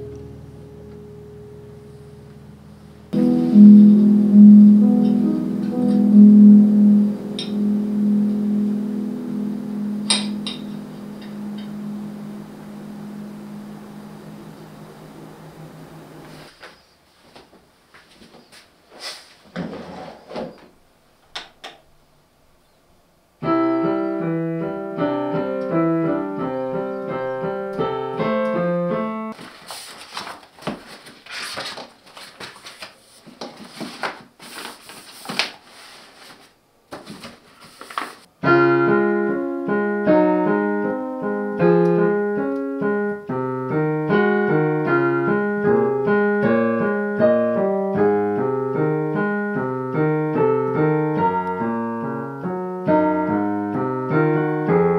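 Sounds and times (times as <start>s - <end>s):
digital piano playing: 0.0s - 16.3s, 23.4s - 29.4s, 38.4s - 54.9s
book pages rustling: 29.4s - 38.3s.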